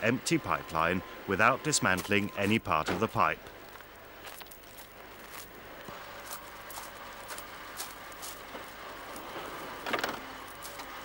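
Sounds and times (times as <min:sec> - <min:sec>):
footsteps crunching on gravel: 0:01.8 - 0:09.8
van sliding door opening: 0:02.8 - 0:03.2, 0:08.4 - 0:11.0.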